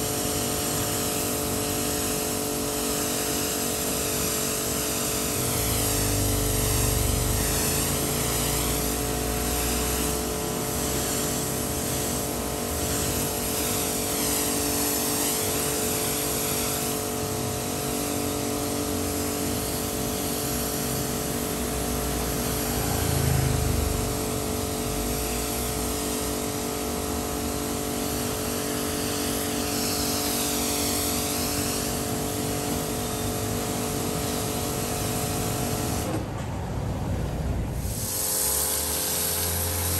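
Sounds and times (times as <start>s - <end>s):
pressure washer motor hum: 0.0s - 39.9s
water jet hissing: 37.7s - 39.9s.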